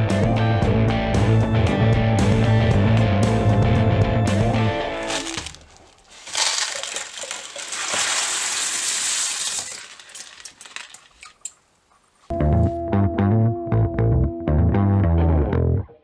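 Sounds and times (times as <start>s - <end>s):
water pouring over gravel: 5.1s - 11.5s.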